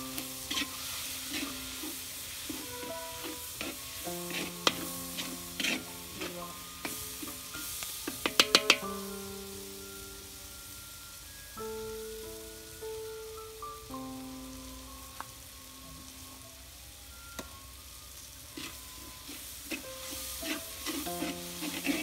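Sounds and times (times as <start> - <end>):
spoon scraping and knocking pan: 0.0 - 9.1, 18.5 - 22.0
background music with held notes: 0.0 - 22.0
curry sizzling in a pan: 0.0 - 22.0.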